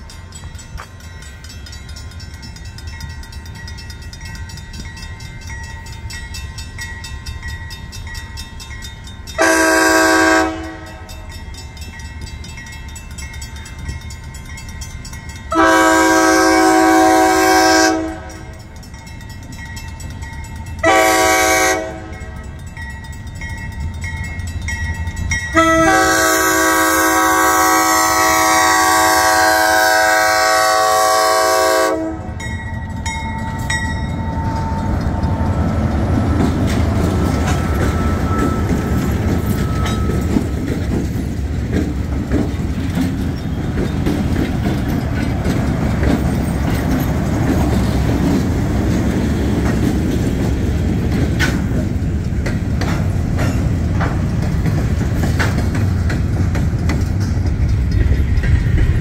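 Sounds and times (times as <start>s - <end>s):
train wheels on rail: 0.0s - 59.0s
locomotive horn blasts: 9.4s - 11.2s, 15.5s - 18.6s, 20.8s - 22.4s, 25.5s - 32.4s
diesel engines rumbling: 23.6s - 59.0s.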